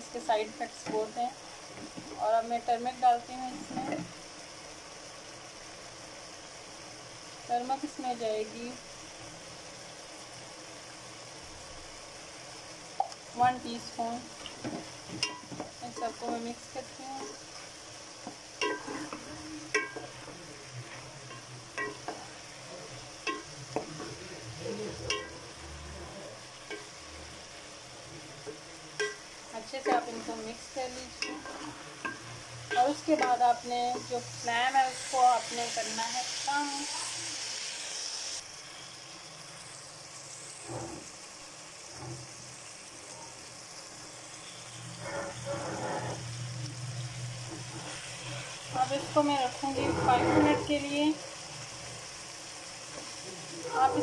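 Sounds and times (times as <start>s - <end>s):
food sizzling in oil: 0.0s - 54.0s
spoon clinking against pan: 18.6s - 20.2s, 21.3s - 22.2s, 23.2s - 23.9s, 25.1s - 25.4s, 29.0s - 29.3s.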